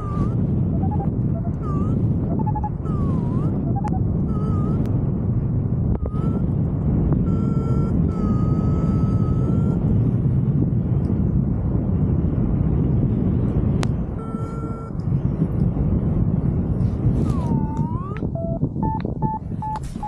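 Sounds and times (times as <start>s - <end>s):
high beeping tones: 0.0s - 4.9s, 6.0s - 6.4s, 7.3s - 9.8s, 14.2s - 14.9s, 17.3s - 20.0s
wind buffeting microphone: 0.0s - 20.0s.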